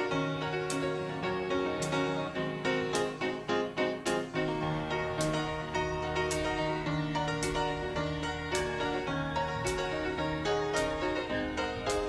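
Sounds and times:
piano melody: 0:00.0 - 0:12.0.

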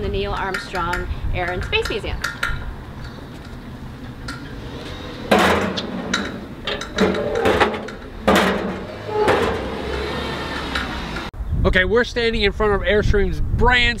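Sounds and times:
metal mailbox door clanking: 0:02.3 - 0:11.3.

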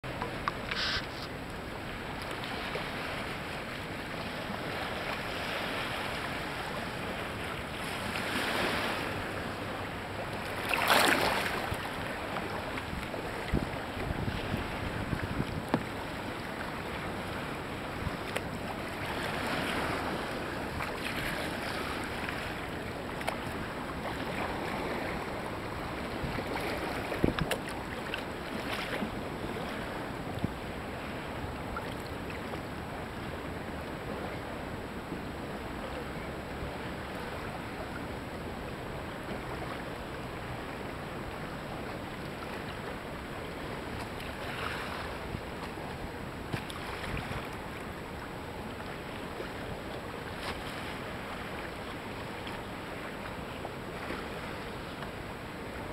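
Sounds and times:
water splashing around a kayak: 0:00.0 - 0:55.9
wind buffeting microphone: 0:12.9 - 0:16.0, 0:24.4 - 0:27.6.

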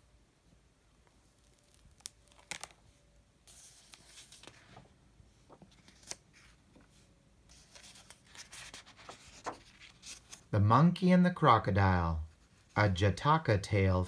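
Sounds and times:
paper pages rustling: 0:01.2 - 0:10.5.

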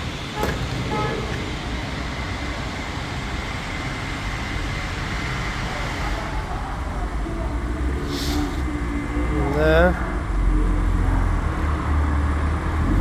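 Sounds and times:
rushing vehicle noise: 0:00.0 - 0:13.0
short high hiss: 0:08.0 - 0:08.6.

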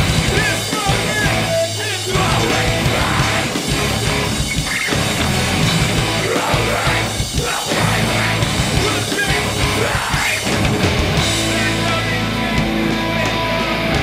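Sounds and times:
rock band playing loudly: 0:00.0 - 0:14.0
held low bass notes: 0:05.0 - 0:07.2.

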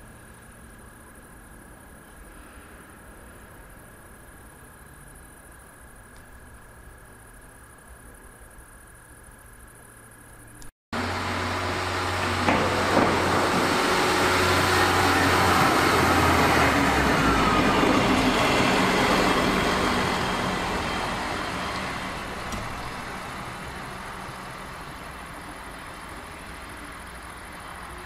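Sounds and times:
diesel engine running: 0:11.0 - 0:28.0
train wheels rumbling on rails: 0:11.0 - 0:28.0.

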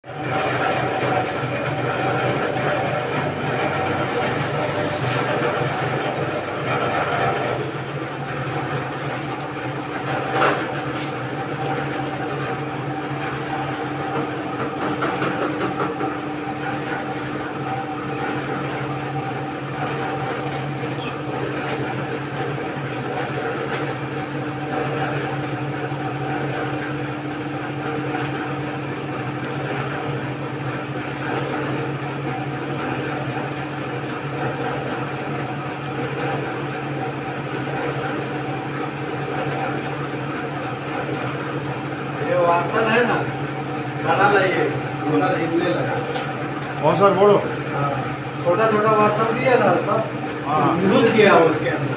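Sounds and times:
noodle machine motor humming: 0:00.1 - 0:25.6.

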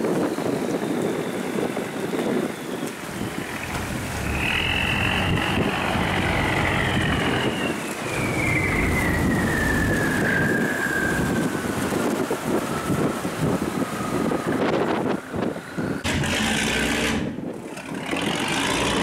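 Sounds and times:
wind on microphone: 0:00.0 - 0:19.0
boat engine rumbling: 0:03.0 - 0:19.0.

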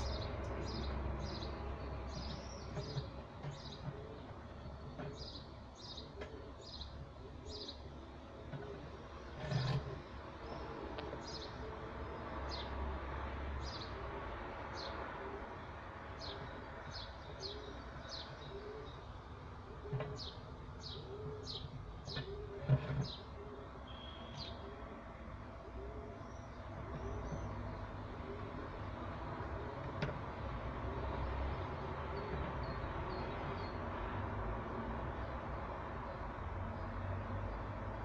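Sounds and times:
small birds chirping: 0:00.0 - 0:07.9, 0:19.8 - 0:24.8
dove cooing: 0:02.2 - 0:12.2, 0:13.9 - 0:16.6, 0:17.3 - 0:33.7.

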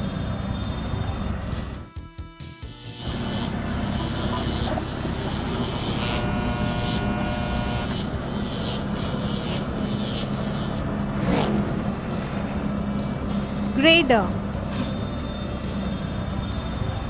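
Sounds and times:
cartoon engine humming and puffing: 0:02.7 - 0:17.0
higher held tone: 0:12.0 - 0:17.0.

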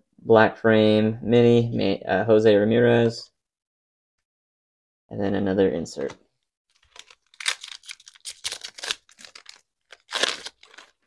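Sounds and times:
plastic wrapper crinkling: 0:06.7 - 0:11.0.

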